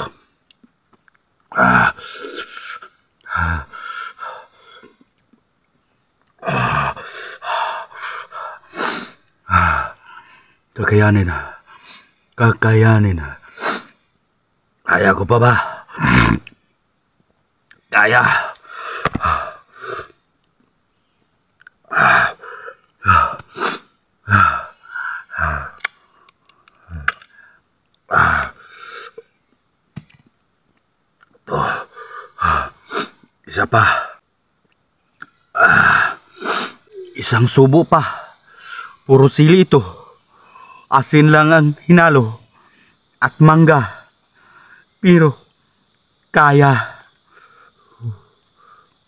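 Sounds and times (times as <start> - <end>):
man groaning and gasping: 21.9 - 25.8, 35.6 - 37.2.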